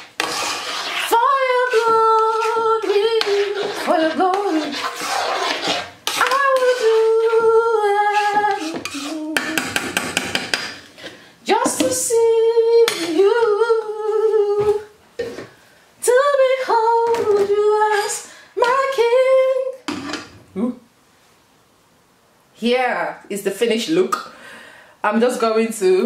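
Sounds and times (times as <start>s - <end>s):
metal spoon tapping a pan: 8.7s - 10.8s.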